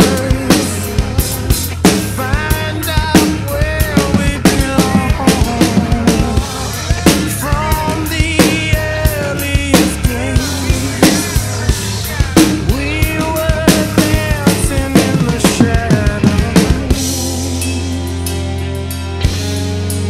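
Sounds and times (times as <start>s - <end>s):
recorded song with singing: 0.0s - 18.1s
drum kit playing: 0.0s - 20.0s.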